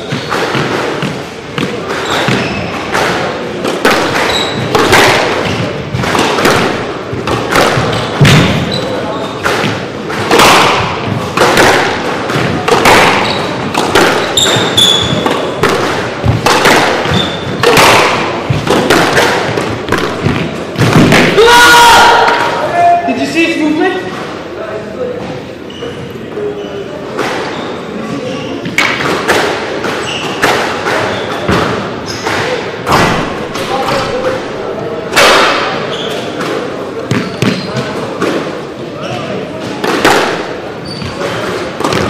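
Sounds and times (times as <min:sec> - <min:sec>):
shoes squeaking on wooden floor: 0:00.0 - 0:03.1, 0:04.0 - 0:06.4, 0:07.0 - 0:09.4, 0:12.0 - 0:20.8, 0:25.2 - 0:28.8, 0:29.9 - 0:32.3, 0:35.8 - 0:36.4, 0:37.1 - 0:38.0, 0:40.8 - 0:42.0
squash ball hits echoing: 0:00.0 - 0:23.0, 0:28.3 - 0:42.0.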